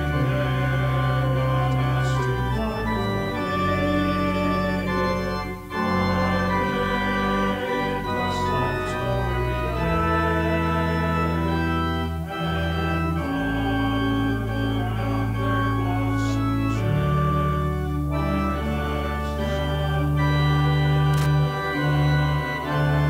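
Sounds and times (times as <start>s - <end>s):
church organ playing chords: 0.0s - 23.0s.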